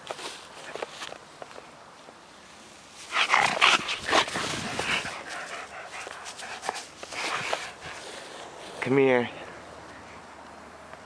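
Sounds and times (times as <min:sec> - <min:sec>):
dog making rough noises: 0:03.1 - 0:08.2.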